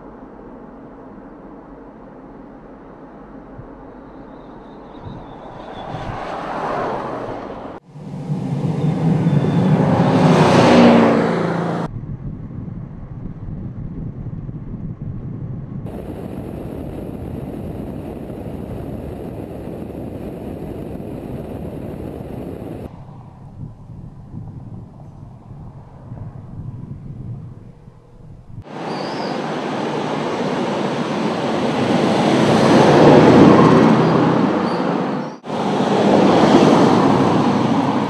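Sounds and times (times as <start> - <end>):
tyre and road noise: 4.4 - 11.9, 15.8 - 23.6, 27.4 - 38.0
car engine revving past: 5.3 - 11.9.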